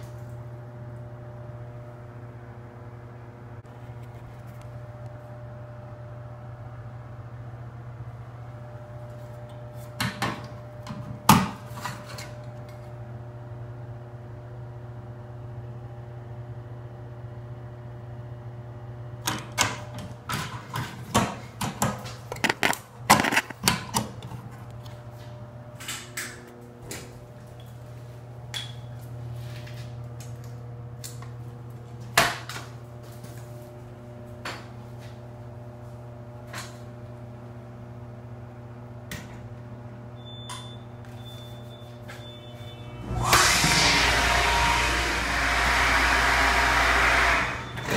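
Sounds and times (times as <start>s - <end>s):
sharp clicks and knocks: 19.3s - 24.3s.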